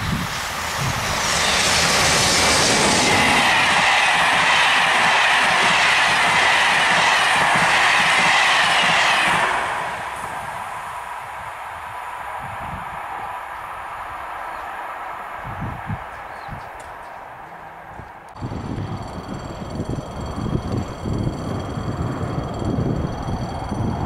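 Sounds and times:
train wheels rolling on rail: 0:00.0 - 0:24.0
high tone: 0:18.4 - 0:24.0.

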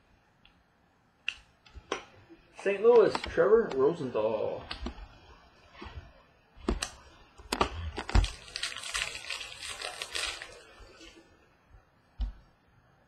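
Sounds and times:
papery rustling of cards: 0:05.8 - 0:11.2.

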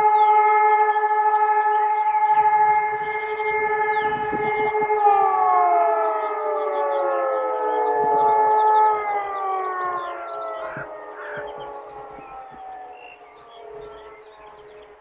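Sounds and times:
sirens wailing: 0:00.0 - 0:15.0
faint bird chirps: 0:09.4 - 0:15.0.

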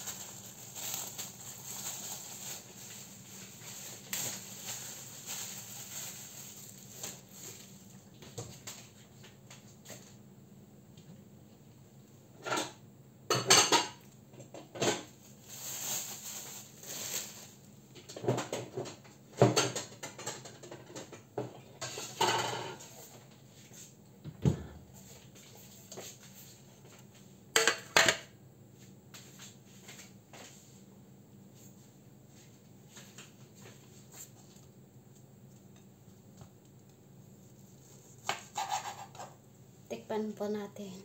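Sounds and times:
dishes clinking and clattering: 0:12.4 - 0:15.1, 0:18.1 - 0:22.9, 0:27.6 - 0:28.3
dishes scraping: 0:21.8 - 0:23.1, 0:38.2 - 0:39.4.

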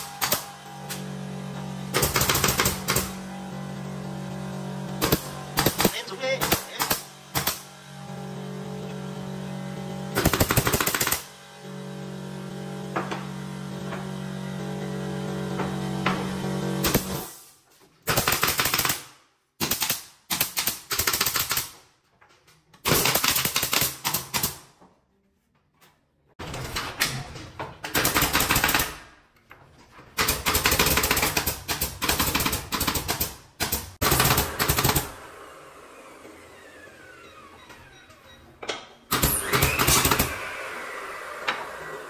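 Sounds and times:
pneumatic nail gun firing: 0:00.0 - 0:01.2, 0:01.9 - 0:03.3, 0:05.0 - 0:07.8, 0:10.1 - 0:11.4, 0:16.0 - 0:21.8, 0:22.8 - 0:24.7, 0:27.9 - 0:29.1, 0:30.2 - 0:35.3, 0:39.1 - 0:41.9.

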